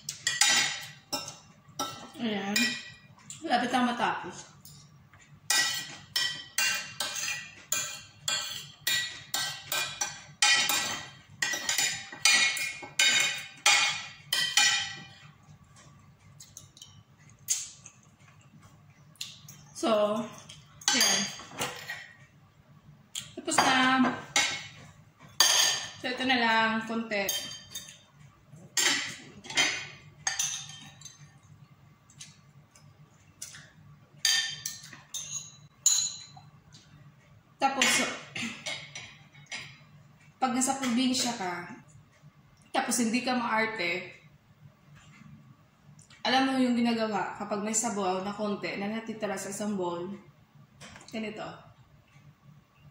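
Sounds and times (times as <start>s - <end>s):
metal spoon clinking on bowl: 34.2s - 36.4s.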